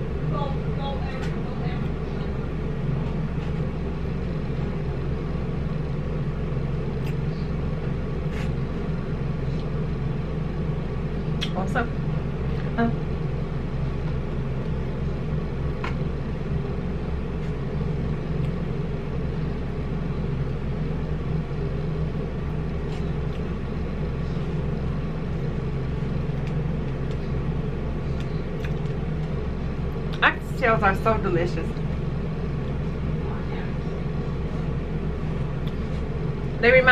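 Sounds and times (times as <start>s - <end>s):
low background rumble: 0.0s - 36.9s
mouth clicks and smacks eating: 11.4s - 11.6s, 28.1s - 29.0s.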